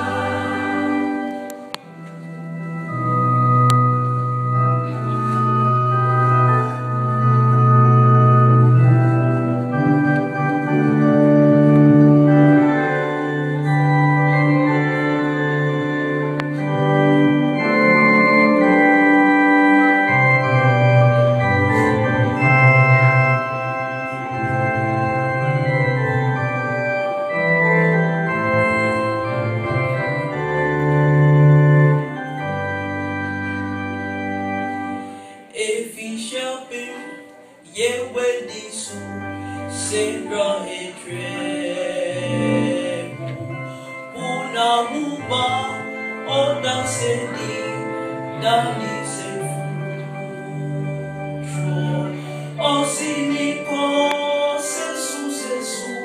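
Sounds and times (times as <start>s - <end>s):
gospel choir singing: 0.0s - 1.7s, 39.8s - 45.8s, 48.4s - 56.0s
electric organ chords: 0.0s - 56.0s.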